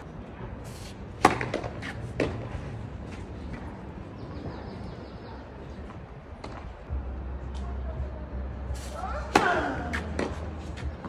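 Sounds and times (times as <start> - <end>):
racket striking tennis ball: 1.2 - 2.5, 9.3 - 10.5.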